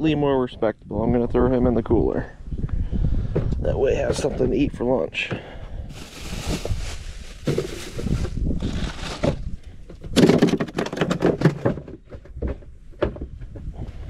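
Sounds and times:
fish knocking in cooler: 0:09.0 - 0:13.6.

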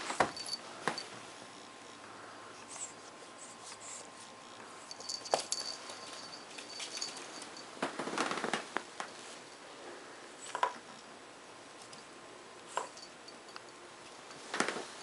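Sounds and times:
puppy paws clicking on floor: 0:04.9 - 0:09.2.

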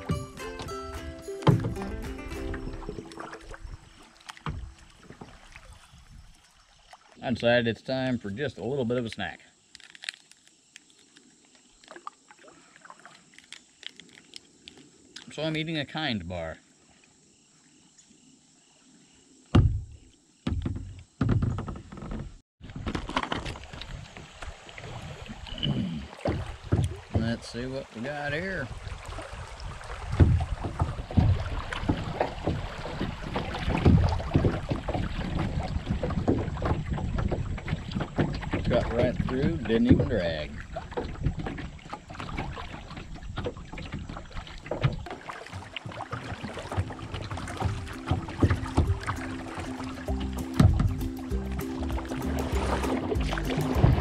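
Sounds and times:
water splashing around kayak: 0:00.0 - 0:10.2, 0:11.4 - 0:15.6, 0:22.6 - 0:54.0
sharp thunk: 0:01.4 - 0:01.9, 0:19.5 - 0:22.2, 0:50.6 - 0:51.0
heavy knocking and rustling: 0:19.6 - 0:23.6.

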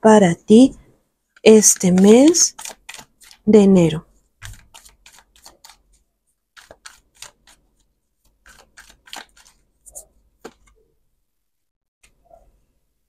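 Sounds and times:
cards being shuffled: 0:01.4 - 0:03.5, 0:04.4 - 0:05.9, 0:06.6 - 0:10.8.

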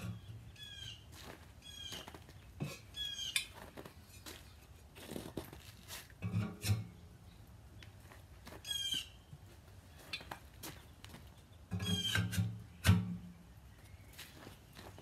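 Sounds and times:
metal pipe knocks and clanks: 0:06.2 - 0:06.9, 0:11.7 - 0:13.2
short raspy squeak: 0:11.8 - 0:12.4.

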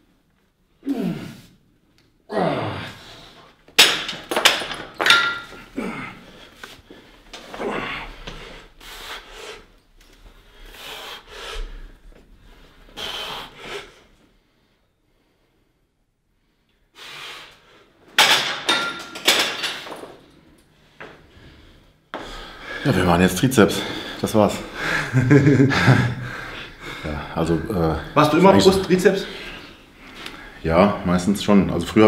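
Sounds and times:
man groaning and grunting: 0:00.8 - 0:01.4, 0:02.3 - 0:03.1, 0:05.7 - 0:06.2, 0:07.5 - 0:08.2
gym weights clanking: 0:03.8 - 0:05.6, 0:18.2 - 0:20.2.

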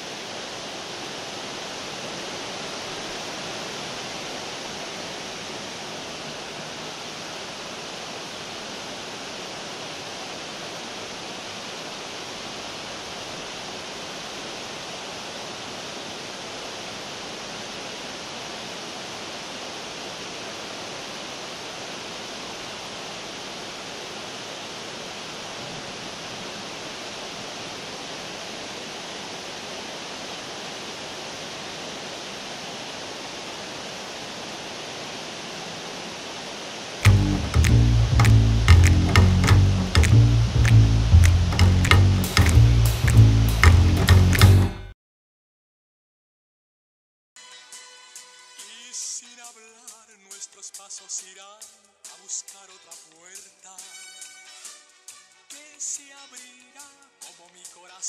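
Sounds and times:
fountain water splashing: 0:00.0 - 0:44.5.

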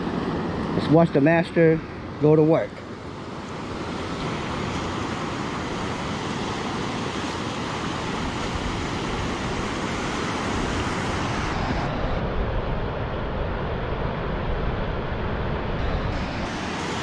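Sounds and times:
ocean surf breaking: 0:00.0 - 0:17.0
wind rumble on microphone: 0:03.6 - 0:17.0.

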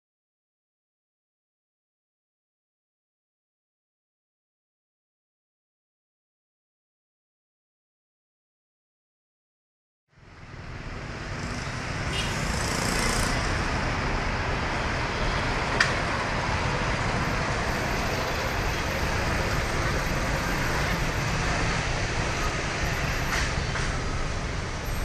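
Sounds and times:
cars and motorbikes driving past: 0:10.2 - 0:25.0.

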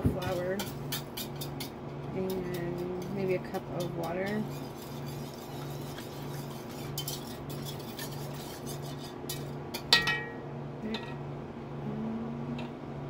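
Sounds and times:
wire whisk scraping a pot: 0:00.0 - 0:10.0
whisk clanking on pot rim: 0:00.0 - 0:10.3.

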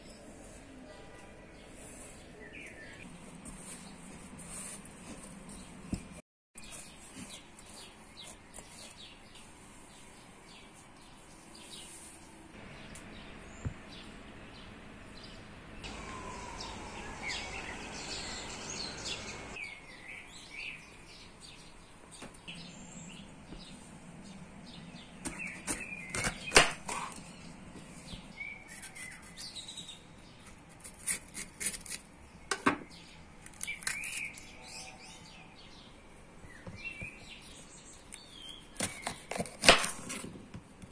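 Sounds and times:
birds chirping: 0:12.6 - 0:30.4.

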